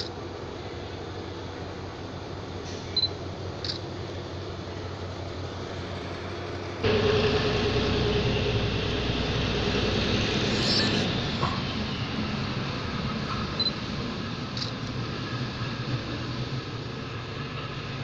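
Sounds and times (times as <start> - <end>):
mechanical hum: 0.0 - 18.0
mid-pitched tone: 6.8 - 11.2.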